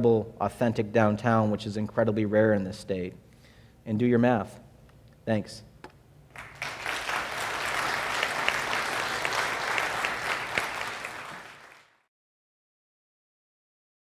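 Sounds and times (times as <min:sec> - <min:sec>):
audience applauding: 0:06.3 - 0:12.1.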